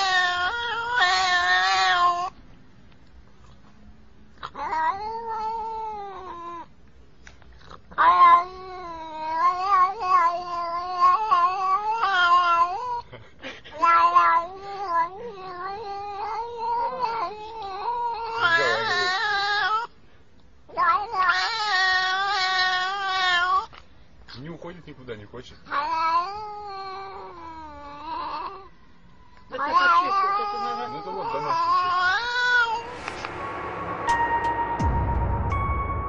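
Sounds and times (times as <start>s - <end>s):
cat meowing: 0.0s - 2.4s, 4.4s - 6.7s, 7.9s - 13.0s, 13.8s - 19.9s, 20.7s - 23.8s, 25.7s - 28.8s, 29.5s - 33.0s.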